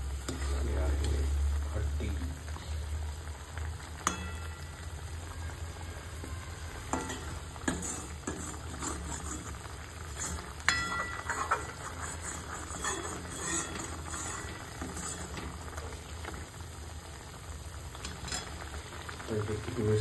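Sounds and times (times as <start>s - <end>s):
metal ladle scraping a pot: 6.8s - 16.5s, 18.0s - 18.8s
ladle clinking against pot: 6.9s - 9.5s, 10.2s - 11.8s.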